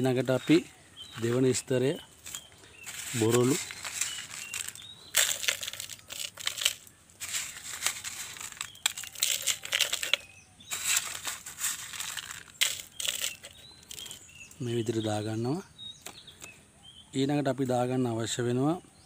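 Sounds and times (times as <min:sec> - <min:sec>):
gravel poured into plastic pot: 0:02.8 - 0:14.2.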